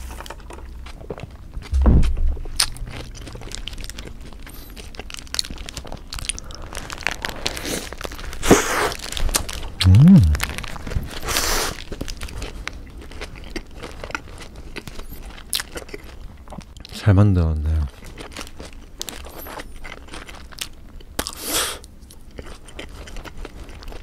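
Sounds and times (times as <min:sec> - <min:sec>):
low thump: 0:01.8 - 0:03.0
chewing and biting: 0:02.6 - 0:17.0, 0:17.9 - 0:24.0
paper wrapper crinkling: 0:03.3 - 0:09.8.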